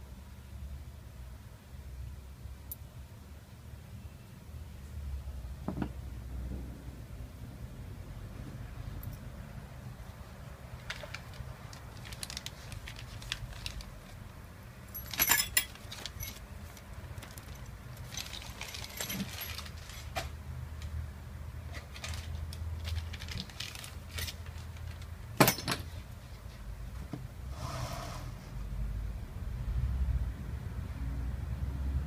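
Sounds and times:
metal tools clinking and clattering: 14.9 - 16.4, 18.0 - 20.2, 25.4 - 26.0.

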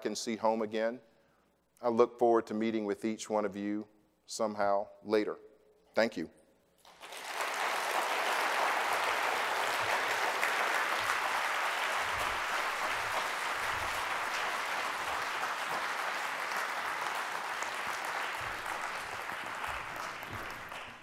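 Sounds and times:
audience applauding: 6.8 - 21.0.

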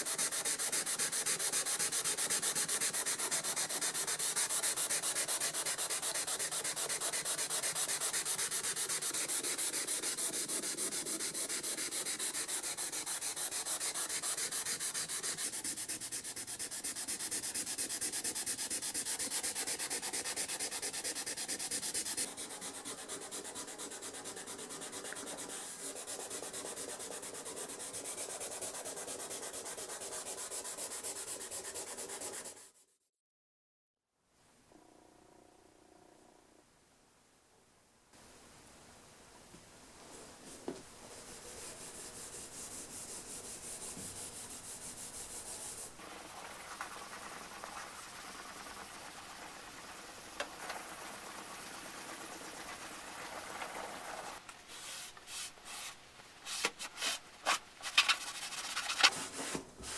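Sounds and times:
abrasive pad scrubbing metal: 0.0 - 32.5.

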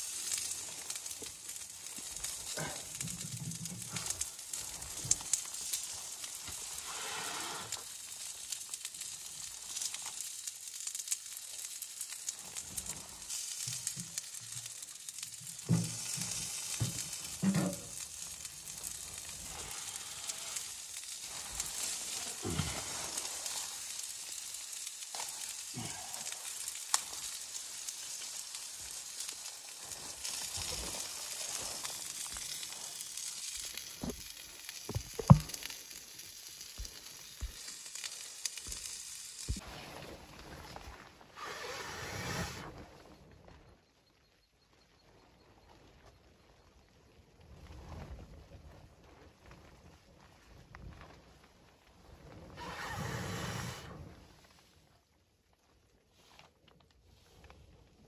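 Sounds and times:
wood stove hissing and crackling: 0.0 - 39.6, 45.8 - 58.0
firewood knocking: 34.9 - 35.7.

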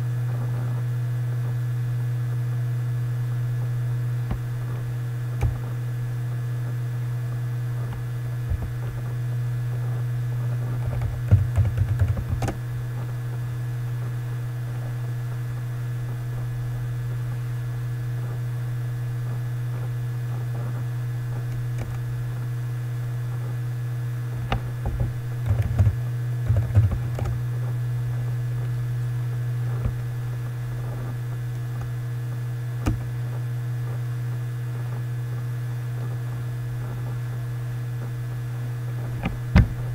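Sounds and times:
low electrical hum: 0.0 - 39.9
computer keyboard typing: 11.3 - 12.4, 25.5 - 27.0.

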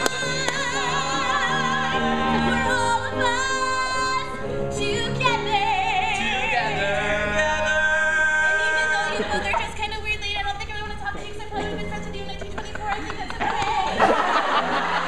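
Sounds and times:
group singing operatically: 0.0 - 9.9.

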